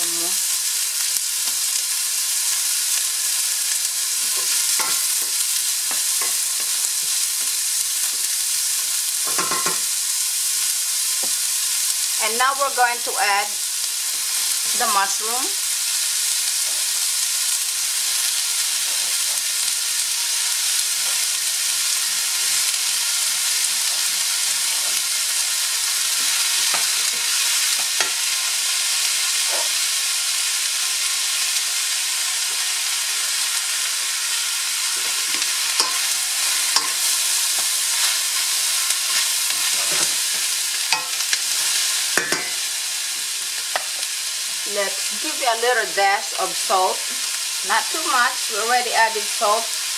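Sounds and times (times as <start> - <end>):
food sizzling in a pan: 0.0 - 49.9
wooden spatula scraping a pan: 34.9 - 42.6.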